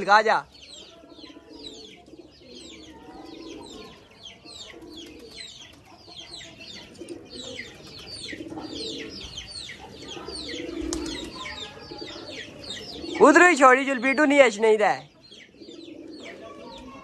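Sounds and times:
birds chirping: 0:00.0 - 0:17.0
pigeons cooing: 0:00.5 - 0:14.3, 0:15.1 - 0:17.0.

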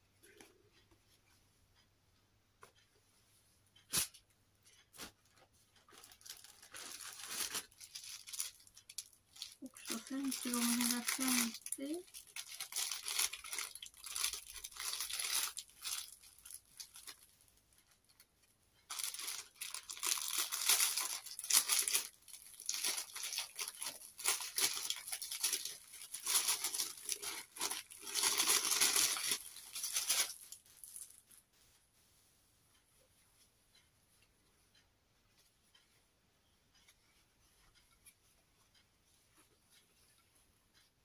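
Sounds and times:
plastic packaging crinkling: 0:05.8 - 0:17.3, 0:18.9 - 0:31.4.

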